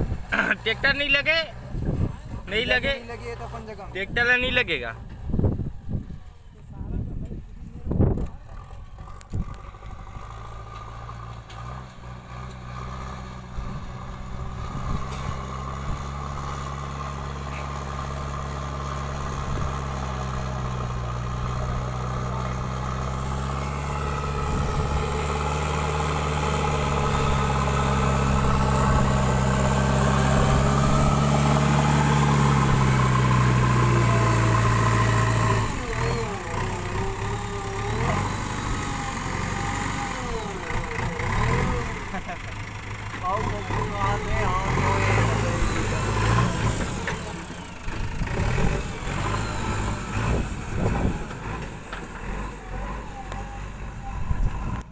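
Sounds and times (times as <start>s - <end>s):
diesel engine running under load: 0.0s - 54.9s.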